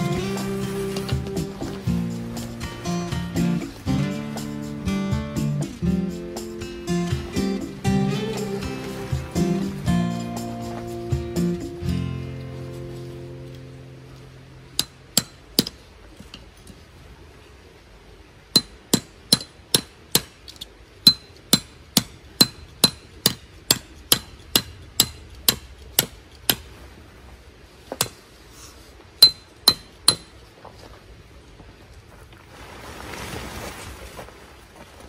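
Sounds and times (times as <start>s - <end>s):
hammer striking tent peg: 14.8s - 15.8s, 18.6s - 26.7s, 29.2s - 30.3s.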